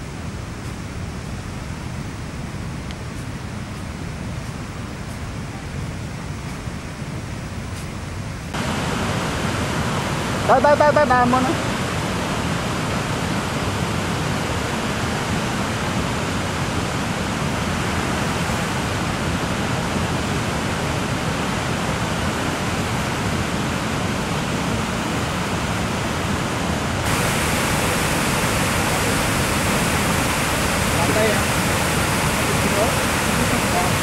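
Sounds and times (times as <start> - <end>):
waterfall rushing over rocks: 8.5 - 34.0.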